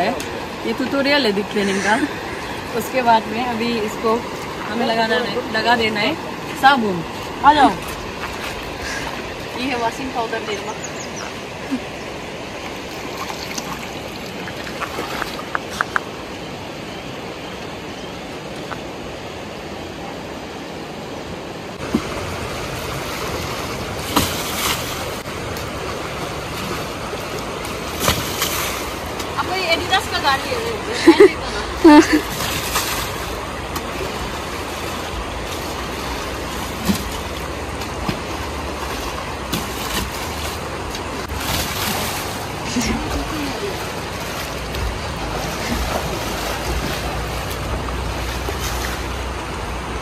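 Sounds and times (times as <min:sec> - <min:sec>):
river water running: 0:00.0 - 0:50.0
bucket scooping water splashes: 0:21.8 - 0:29.4, 0:32.1 - 0:49.2.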